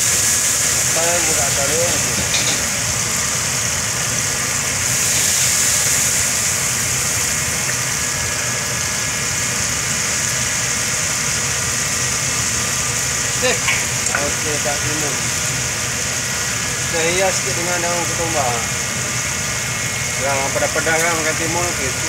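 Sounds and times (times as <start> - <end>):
high hiss: 0.0 - 22.0
low machine hum: 0.0 - 22.0.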